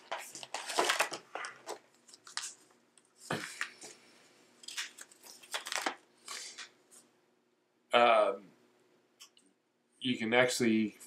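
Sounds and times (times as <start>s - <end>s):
paper and cardboard rustling: 0.0s - 4.0s, 4.6s - 6.7s.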